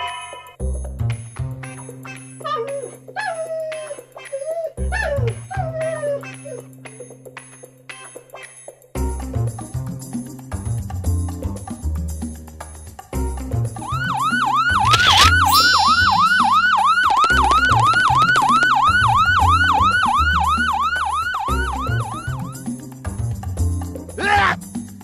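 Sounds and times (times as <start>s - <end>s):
background music with bass: 0.6s - 2.4s, 9.0s - 14.7s, 16.1s - 25.0s
police siren yelping: 13.8s - 22.6s.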